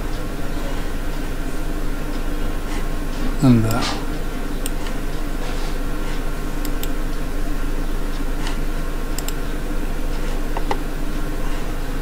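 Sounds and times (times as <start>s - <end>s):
electrical hum and hiss: 0.0s - 12.0s
computer mouse clicks: 6.6s - 7.0s, 9.2s - 9.4s, 10.6s - 10.8s.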